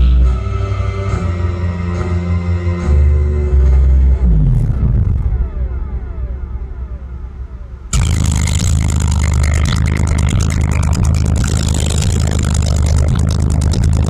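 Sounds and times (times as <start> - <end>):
deep subwoofer bass: 0.0 - 2.0, 2.8 - 14.0
harsh rattling buzz: 7.9 - 14.0.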